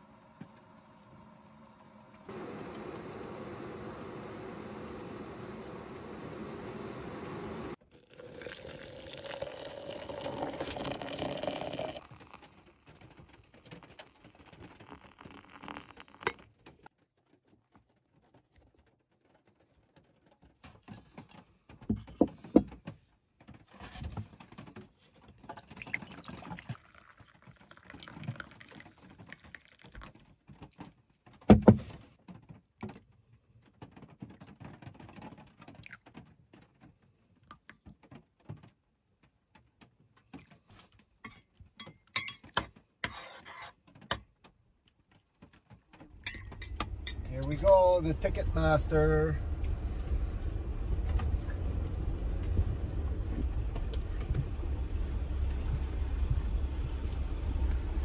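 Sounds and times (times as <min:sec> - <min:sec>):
liquid pouring from a kettle: 0:07.9 - 0:16.5, 0:25.5 - 0:30.3.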